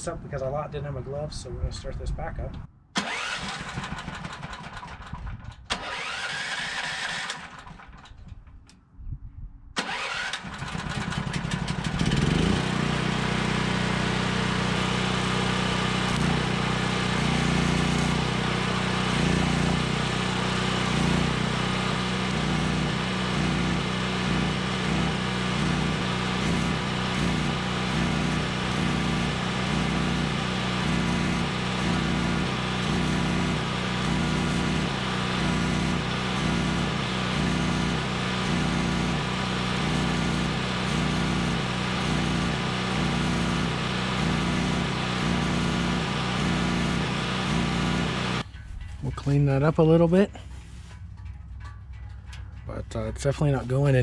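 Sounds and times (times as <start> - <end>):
gas generator starting and running: 0.0 - 8.9, 9.7 - 54.0
arc welding on steel: 12.3 - 48.5.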